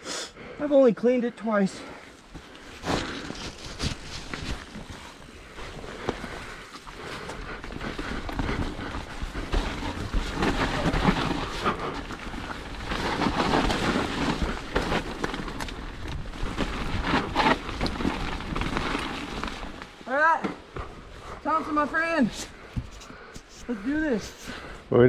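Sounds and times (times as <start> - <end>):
bike rattling over roots and rocks: 2.3 - 22.1.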